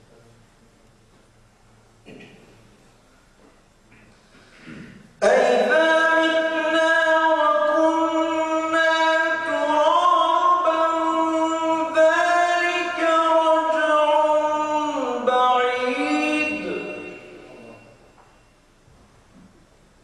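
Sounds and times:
man reciting in melodic sung style: 5.2s - 18.0s.

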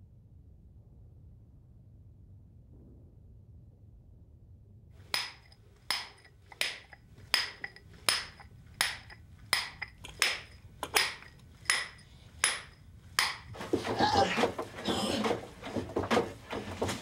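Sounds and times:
hammer striking steel drill bar: 5.1s - 13.6s.

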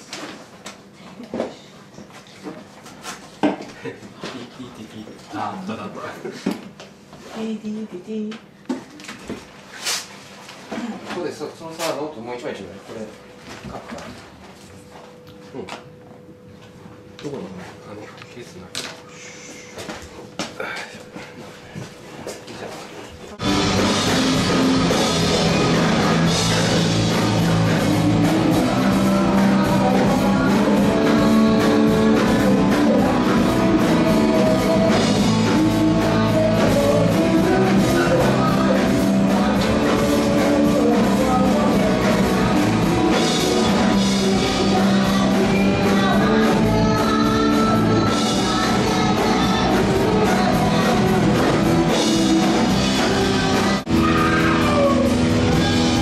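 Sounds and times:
rock song with singing: 23.4s - 56.0s.

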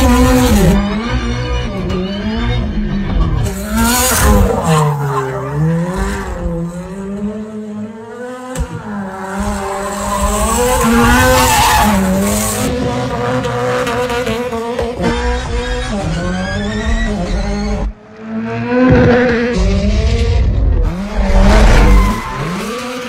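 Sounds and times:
tyres skidding and squealing: 3.4s - 6.8s, 8.6s - 12.8s, 15.1s - 17.9s, 20.9s - 23.0s
car engine revving hard: 3.5s - 23.0s.

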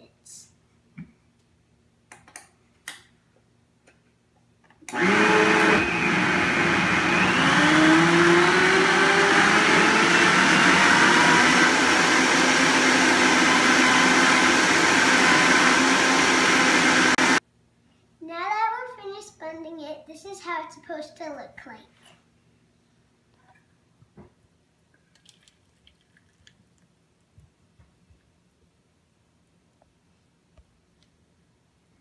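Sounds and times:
blender motor whine: 4.9s - 17.4s.

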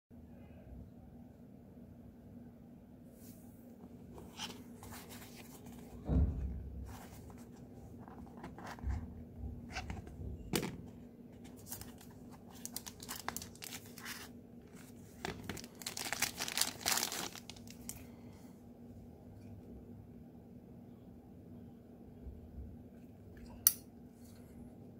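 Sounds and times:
low thump of box: 6.0s - 7.0s
wrapping crinkling and rustling: 11.4s - 18.1s.

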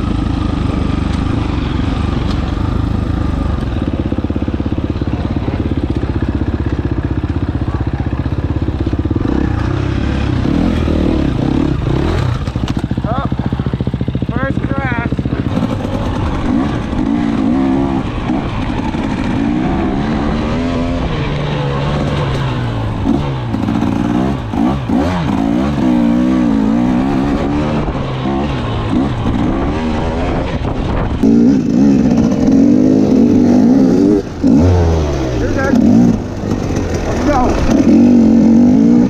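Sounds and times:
dirt bike engine revving: 0.0s - 39.0s.

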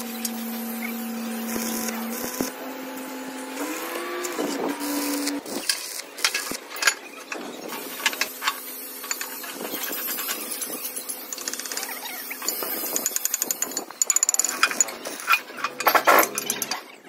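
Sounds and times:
metallic clicks and knocks: 12.5s - 16.9s.

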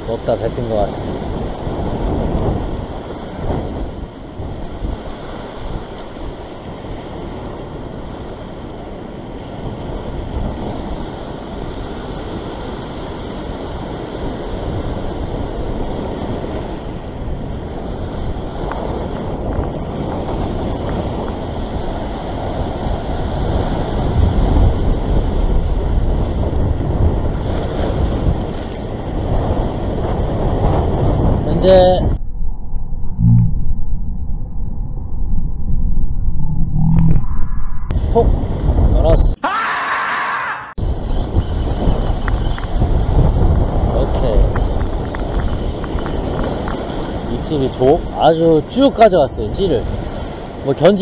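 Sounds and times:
wind buffeting microphone: 0.0s - 39.4s, 40.7s - 51.0s
sea waves breaking over rocks: 0.6s - 31.9s.

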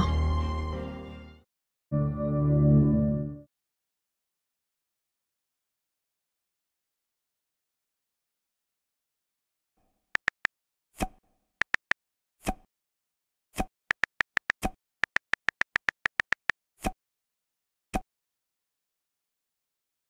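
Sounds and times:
light tapping clicks: 10.2s - 10.5s.

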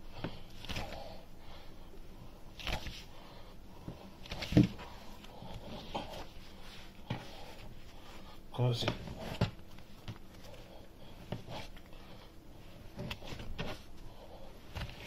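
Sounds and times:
dough thumping and squishing: 2.5s - 3.1s, 3.8s - 6.4s, 8.6s - 10.4s, 12.7s - 14.0s, 14.6s - 15.0s.

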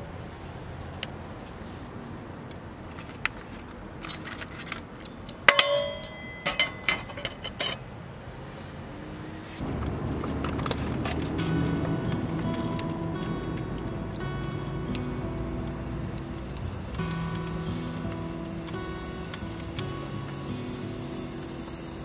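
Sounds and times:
dishes and utensils clinking: 5.4s - 7.8s.

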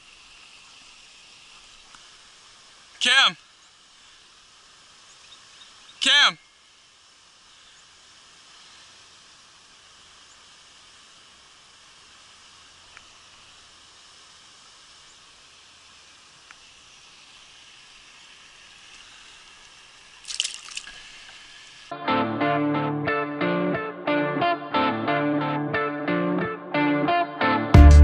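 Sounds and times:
faint outdoor hiss: 0.0s - 28.0s
fish splashing into water: 20.0s - 21.8s.

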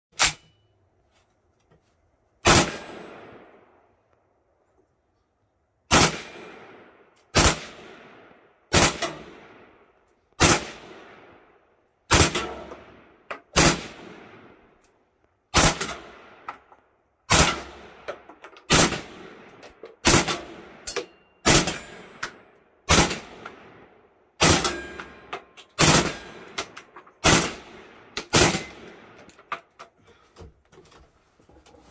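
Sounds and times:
rifle shots with echo: 2.4s - 3.7s, 5.9s - 14.7s, 15.5s - 16.5s, 17.3s - 18.1s, 18.7s - 29.2s.

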